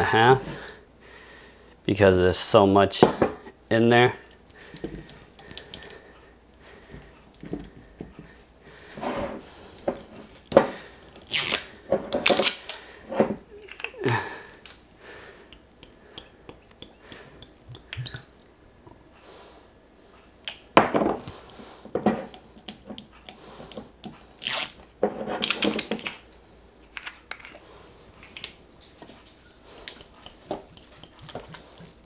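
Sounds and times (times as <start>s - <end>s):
meat squelching: 30.2s - 32.0s
sauce glugging and splatting: 30.2s - 32.0s.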